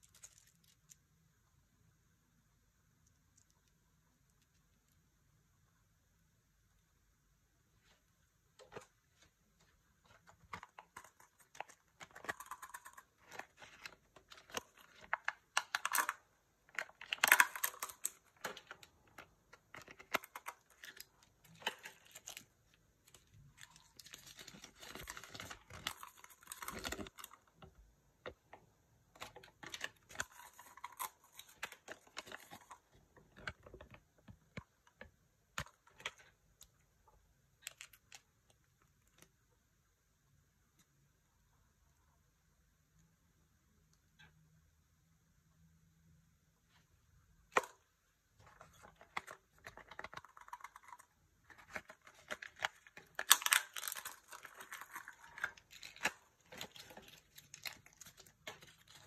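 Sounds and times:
plastic wrapper tearing and crinkling: 0:00.0 - 0:01.0, 0:10.0 - 0:27.6, 0:29.2 - 0:34.0, 0:48.5 - 0:59.0.

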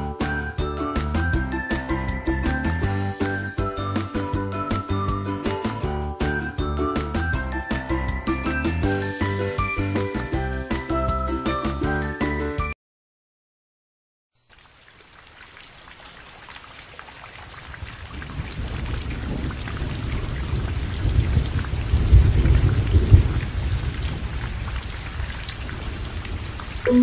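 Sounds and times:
heavy rain: 0:14.7 - 0:27.0
rolling thunder rumble: 0:17.9 - 0:27.0.

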